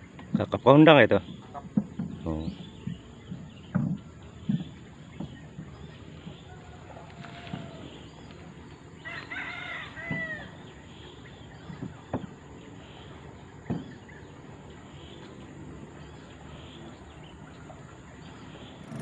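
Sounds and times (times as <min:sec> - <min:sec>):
rooster crowing: 0:06.5 - 0:08.1, 0:09.0 - 0:10.6.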